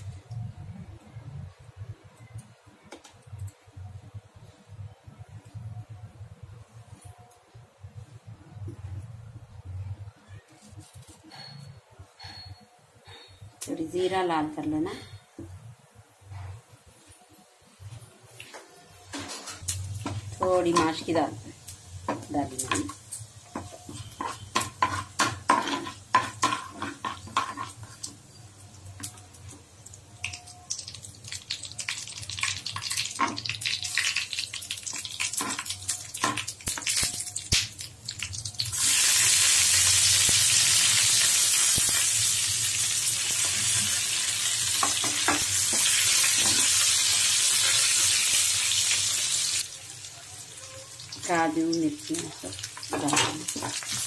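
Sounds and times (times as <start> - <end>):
loud sizzle of frying: 17.8 - 54.0
food frying gently: 19.6 - 54.0
spoon scraping and tapping pan: 22.1 - 28.2.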